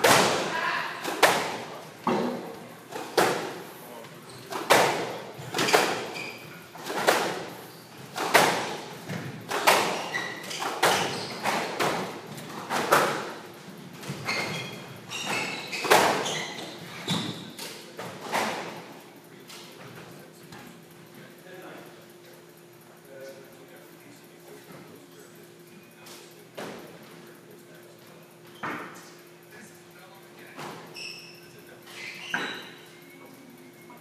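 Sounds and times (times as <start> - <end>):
squash ball hits echoing: 0.0 - 3.6, 6.8 - 13.4
shoes squeaking on wooden floor: 5.4 - 6.6, 9.7 - 11.9, 14.0 - 17.6.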